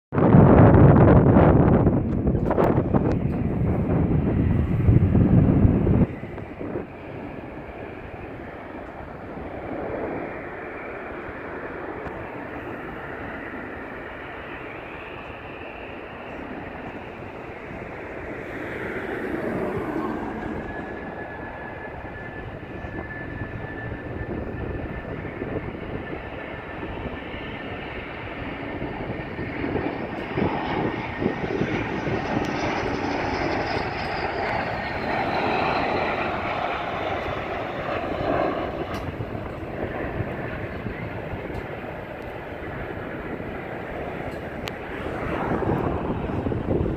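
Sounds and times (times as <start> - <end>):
jet engine whine: 0.1 - 46.9
high whine rising and falling: 16.3 - 24.7, 38.9 - 46.9.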